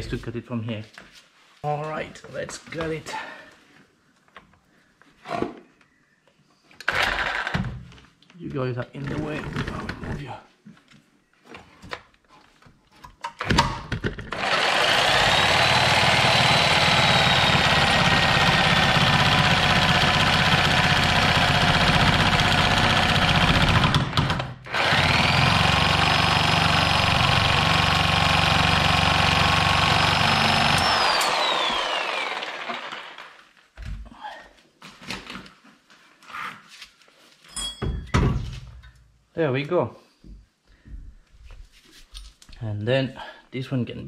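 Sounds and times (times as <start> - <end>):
angle grinder whining: 6.8 - 7.6, 14.3 - 33.5.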